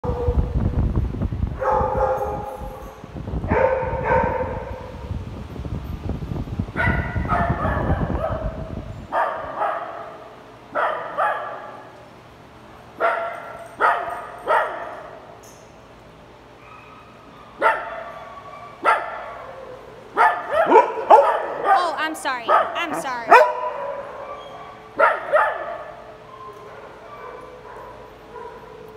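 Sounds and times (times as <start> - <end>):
small dogs barking: 3.5 - 4.8, 9.2 - 10.2, 10.8 - 11.9, 16.6 - 21.8, 22.5 - 28.9.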